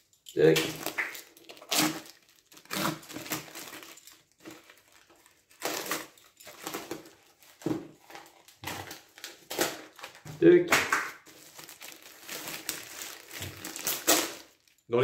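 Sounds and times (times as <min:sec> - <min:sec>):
plastic crinkling: 0:00.2 - 0:10.3, 0:10.9 - 0:14.9
knife slicing plastic wrap: 0:00.6 - 0:04.0, 0:10.8 - 0:14.5.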